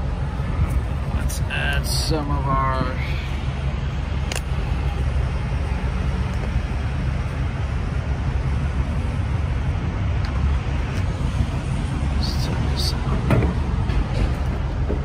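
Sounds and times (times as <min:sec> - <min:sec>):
low engine rumble: 0:00.0 - 0:15.0.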